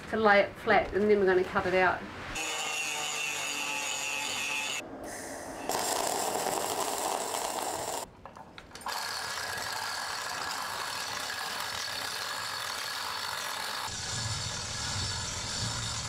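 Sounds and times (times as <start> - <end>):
arc welding crackling: 5.7 - 8.1.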